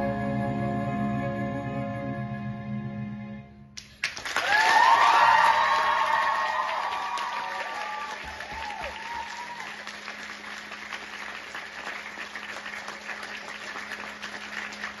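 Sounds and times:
audience applauding: 0:03.8 - 0:15.0
audience cheering: 0:04.2 - 0:11.9.

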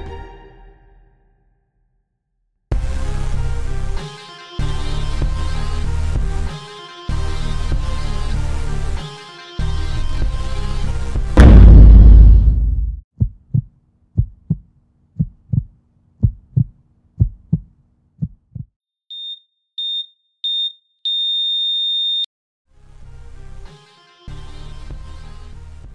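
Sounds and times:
heartbeat thumps: 0:11.4 - 0:18.7.

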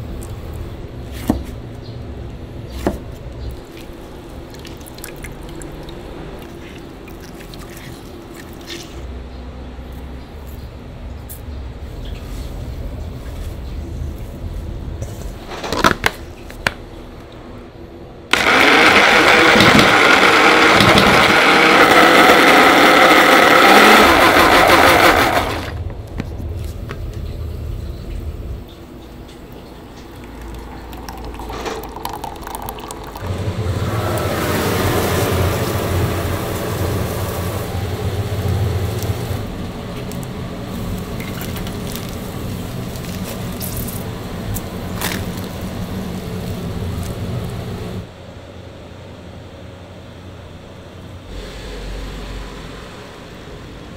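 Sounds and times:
loud whirring noise: 0:16.6 - 0:53.9
low hum: 0:24.1 - 0:48.2.

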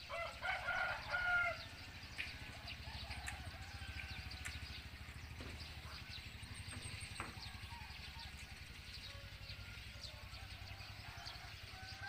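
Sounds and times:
rooster crowing: 0:00.0 - 0:01.8, 0:02.4 - 0:05.0, 0:07.2 - 0:12.0
low steady hum: 0:00.0 - 0:12.0
small bird chirps: 0:00.0 - 0:12.0.

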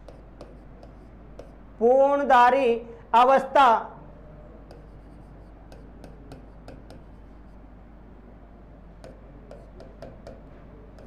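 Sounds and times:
pen tapping and scraping on screen: 0:00.0 - 0:01.7, 0:04.6 - 0:07.6, 0:09.0 - 0:11.0
faint low hum: 0:00.0 - 0:11.0.

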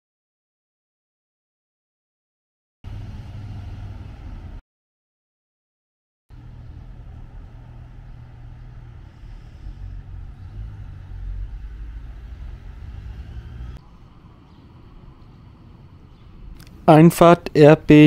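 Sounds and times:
diesel train engine rumble: 0:02.9 - 0:04.6, 0:06.3 - 0:18.0.

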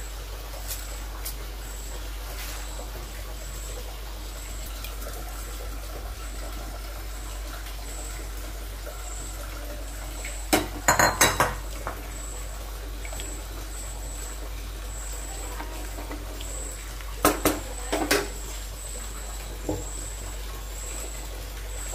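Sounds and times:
faint kitchen background: 0:00.0 - 0:20.6
utensil clanking on metal pot: 0:10.5 - 0:11.6.

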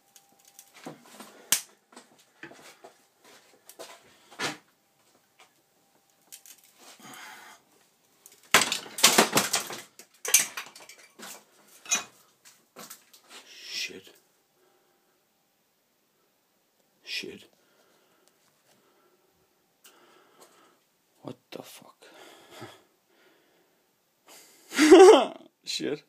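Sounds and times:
plastic cracking and clattering: 0:08.2 - 0:11.4.

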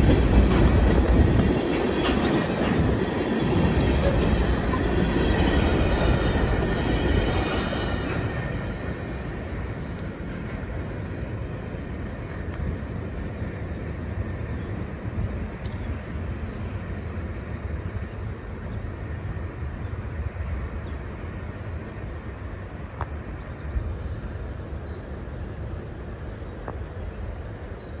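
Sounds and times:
train wheels rumbling on rails: 0:00.0 - 0:28.0
faint clicks: 0:15.6 - 0:15.9.

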